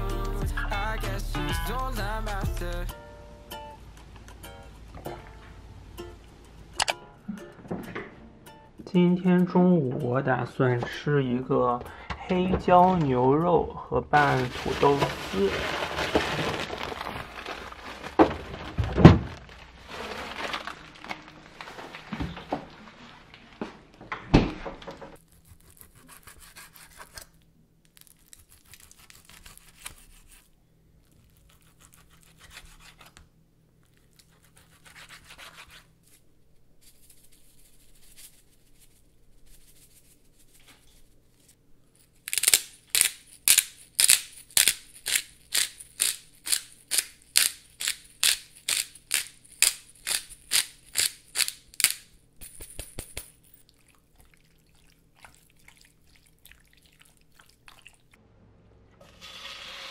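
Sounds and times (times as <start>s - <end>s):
handling and shaking sounds: 14.2s - 23.6s, 36.8s - 53.6s
pepper grinder grinding: 25.2s - 30.4s, 42.0s - 53.5s.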